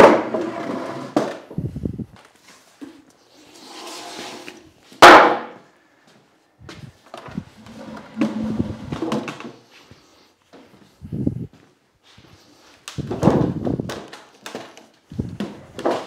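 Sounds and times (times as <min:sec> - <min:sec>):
wooden frame knocking and scraping: 0:07.2 - 0:09.6.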